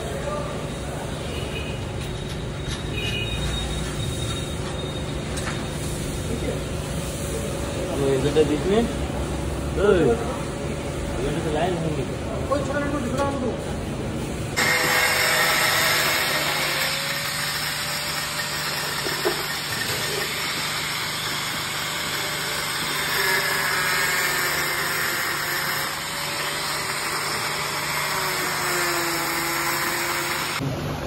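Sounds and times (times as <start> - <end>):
angle grinder cutting plastic: 14.6 - 30.6.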